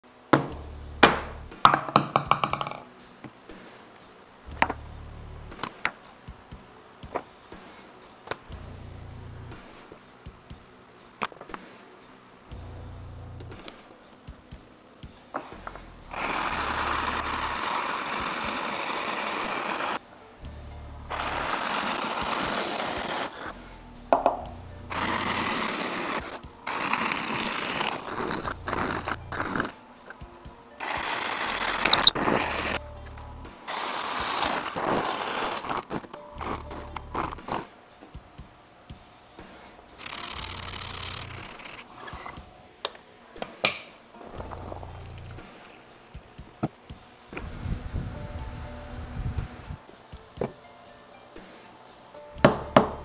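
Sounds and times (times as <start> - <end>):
percussive background music: 0.3 - 53.0
drill press boring into wood: 16.1 - 20.0.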